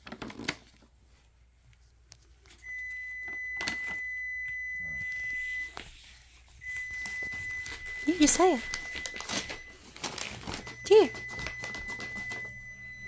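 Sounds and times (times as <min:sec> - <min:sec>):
high electronic beep tone: 0:02.7 - 0:05.8.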